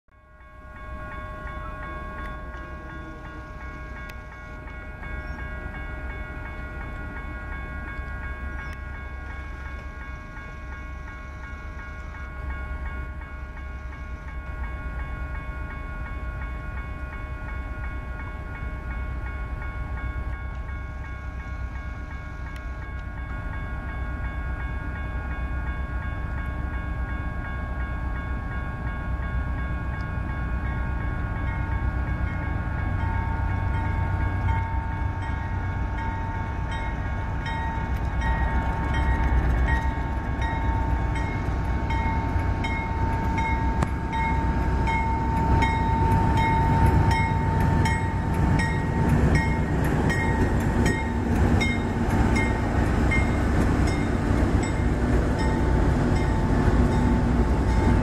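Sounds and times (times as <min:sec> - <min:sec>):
crossing bells ringing: 0:00.1 - 0:58.0
locomotive engines rumbling: 0:00.3 - 0:58.0
train wheels clicking over rail joints: 0:36.0 - 0:58.0.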